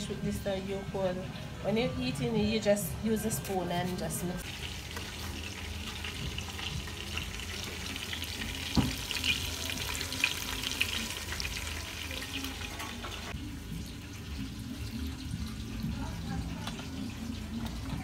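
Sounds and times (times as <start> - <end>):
chicken sizzling in hot oil: 4.4 - 18.0.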